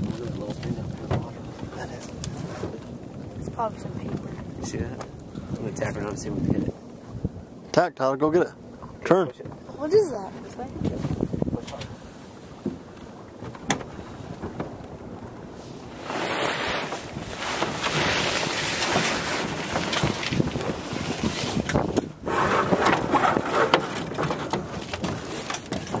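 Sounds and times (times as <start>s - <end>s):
wind buffeting microphone: 0.0s - 26.0s
sailcloth luffing: 15.9s - 20.4s.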